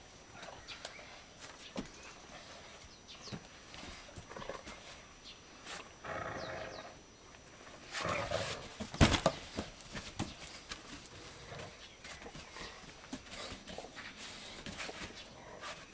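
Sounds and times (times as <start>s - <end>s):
dogs growling: 6.0s - 7.0s, 7.9s - 8.8s
dogs scuffling: 7.8s - 15.9s.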